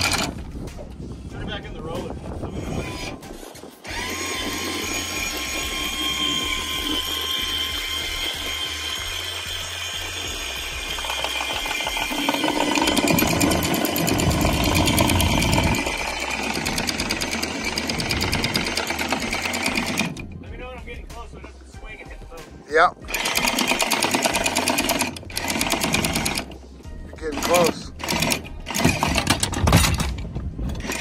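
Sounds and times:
anchor chain rattling: 0.0s - 0.6s, 10.7s - 20.4s, 23.1s - 26.6s, 27.2s - 31.0s
windlass motor whine: 0.0s - 20.7s, 22.9s - 31.0s.

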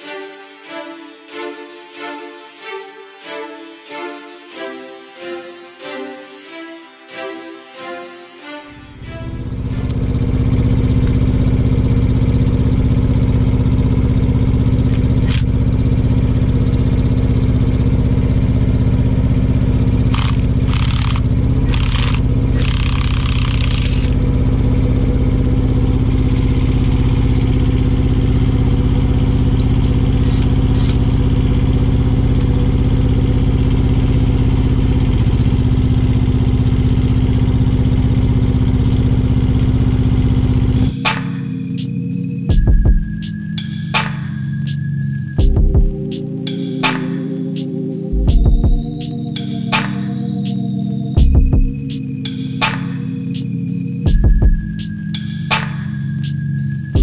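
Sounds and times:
diesel engine idling: 8.8s - 44.0s.

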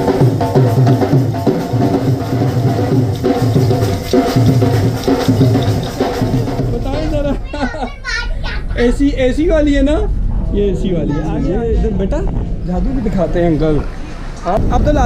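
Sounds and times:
dhol drums beating: 0.0s - 7.4s
steady pitched music: 0.0s - 7.4s.

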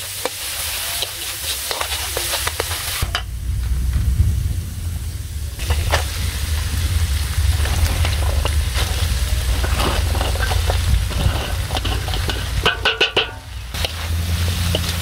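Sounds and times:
greens sizzling in a hot wok: 0.0s - 3.3s, 4.7s - 15.0s
steady low rumble: 2.4s - 15.0s
metal plate scraping against wok: 7.4s - 15.0s.

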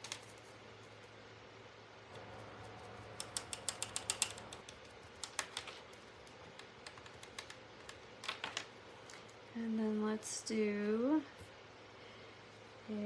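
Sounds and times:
light clicks and crackles: 3.1s - 9.4s.

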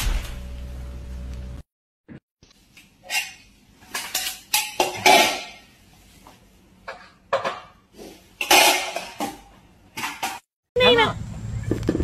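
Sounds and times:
metal containers clattering: 3.0s - 5.8s, 6.8s - 10.5s.

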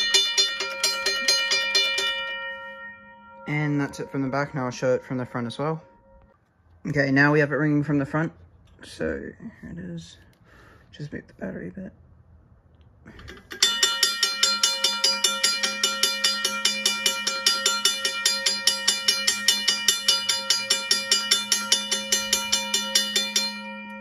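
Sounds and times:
railway crossing bell ringing: 0.0s - 6.4s, 13.6s - 24.0s.

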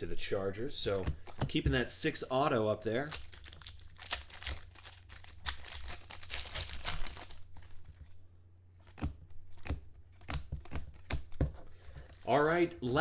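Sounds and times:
plastic wrapper crinkling: 3.0s - 8.2s, 11.8s - 12.6s.

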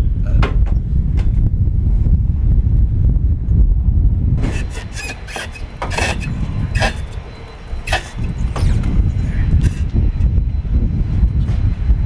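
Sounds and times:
wind rumble on microphone: 0.0s - 12.0s
hand tools scraping metal: 4.4s - 8.9s, 9.6s - 9.9s.

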